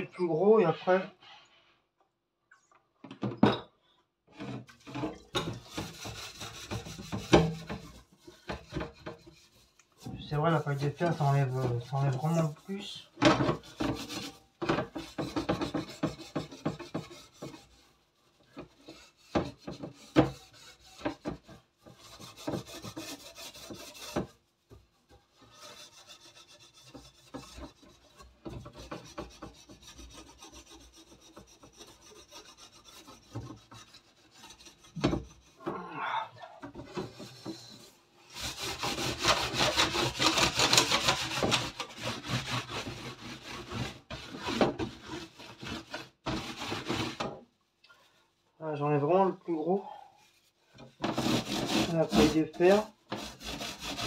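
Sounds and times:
steel wool scrubbing wire rack: 4.8 - 24.0, 51.1 - 52.9.

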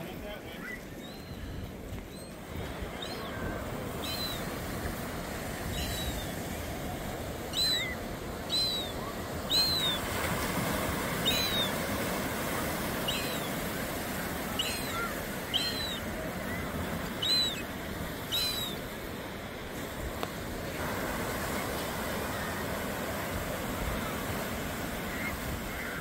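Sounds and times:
bird short high calls: 14.5 - 17.7.

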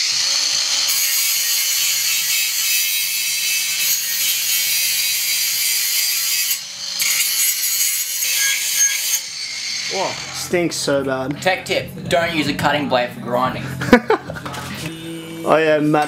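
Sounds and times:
angle grinder grinding metal: 0.0 - 10.6.

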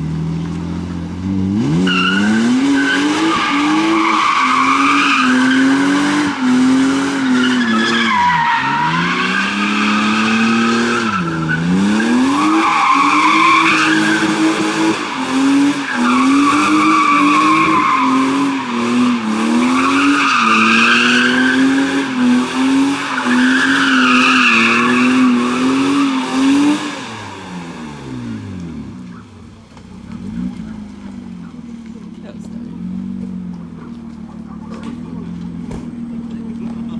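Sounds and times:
car engine revving: 0.0 - 36.9
tyres squealing: 1.9 - 22.0, 22.8 - 26.2.

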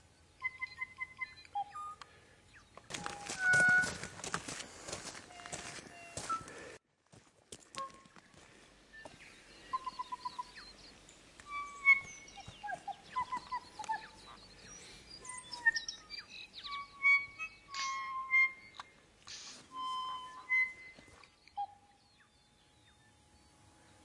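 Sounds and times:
birds singing: 0.0 - 6.8, 7.9 - 24.0
rustling noise: 2.9 - 6.7.

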